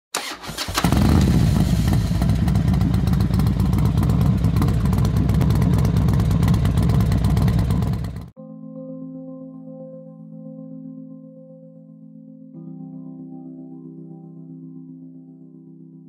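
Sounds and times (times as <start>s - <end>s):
motorcycle engine running loudly: 0.7s - 8.3s.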